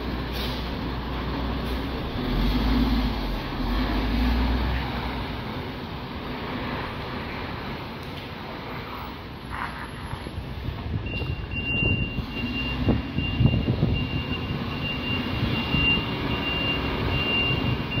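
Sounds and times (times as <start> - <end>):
reversing alarm beeping: 11.0 - 18.0.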